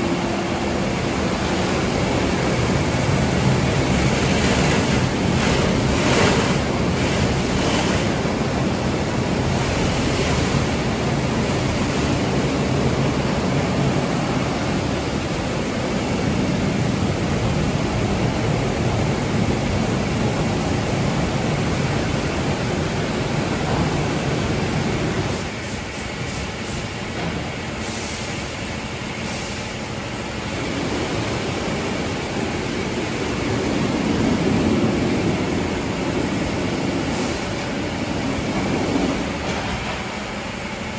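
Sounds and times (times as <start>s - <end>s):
rotating car wash brush scrubbing: 0.0s - 23.5s
water spraying: 0.0s - 27.0s, 29.2s - 40.8s.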